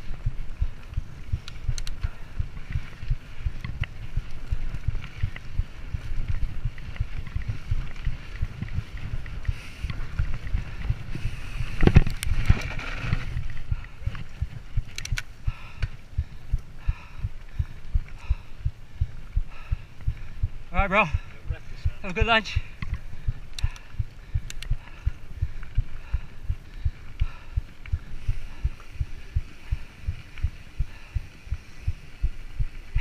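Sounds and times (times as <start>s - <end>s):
mountain bike rumbling on dirt: 0.0s - 33.0s
rattling clicks: 14.8s - 15.3s.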